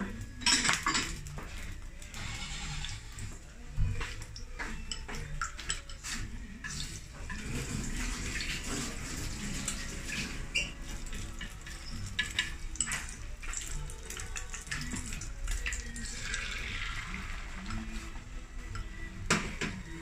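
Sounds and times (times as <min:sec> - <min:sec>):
egg sizzling in a pan: 0:01.2 - 0:03.4, 0:06.0 - 0:18.4.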